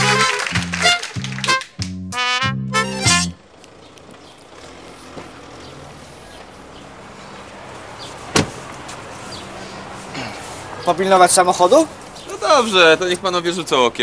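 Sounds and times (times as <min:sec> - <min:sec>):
city street noise: 0:00.0 - 0:14.0
car door shutting: 0:08.3 - 0:08.7.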